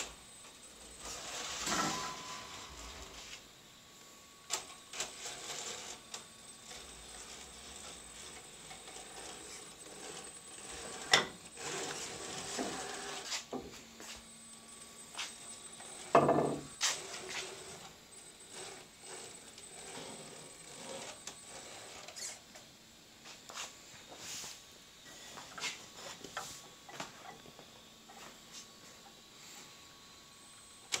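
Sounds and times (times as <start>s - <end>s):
electric motor whining faintly: 0.0s - 31.0s.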